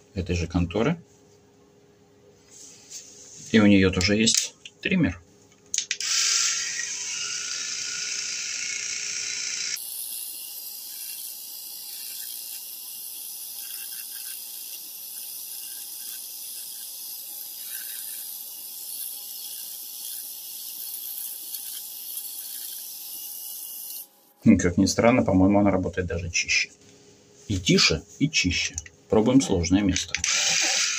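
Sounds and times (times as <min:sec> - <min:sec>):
electric shaver motor hum: 0:06.0 - 0:24.1, 0:30.2 - 0:30.9
hair being cut crackle: 0:06.0 - 0:24.1, 0:30.2 - 0:30.9.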